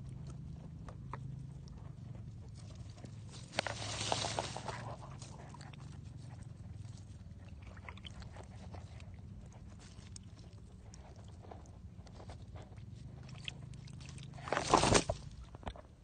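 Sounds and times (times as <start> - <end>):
low steady rumble: 0.0 - 16.0
wet crackles and clicks in mud: 0.0 - 16.0.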